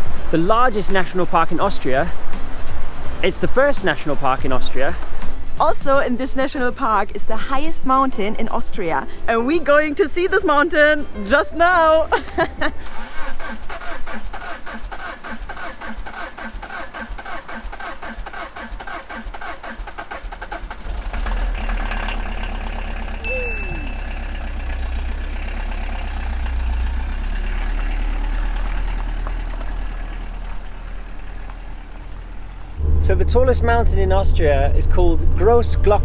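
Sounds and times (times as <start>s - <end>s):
van engine running: 12.1s - 36.0s
starter cranking engine: 12.8s - 31.4s.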